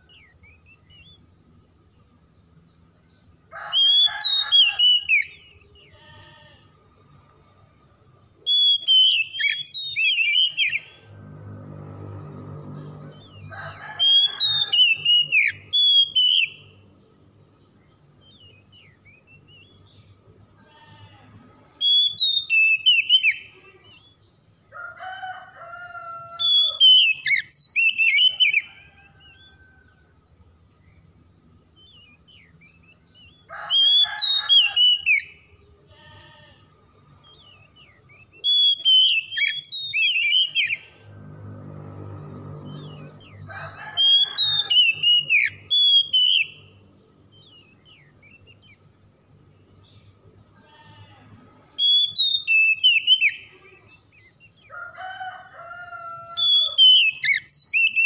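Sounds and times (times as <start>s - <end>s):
bird singing whistled phrases: 8.5s - 10.8s, 14.6s - 16.7s, 38.4s - 40.8s, 44.4s - 46.7s, 51.8s - 53.4s.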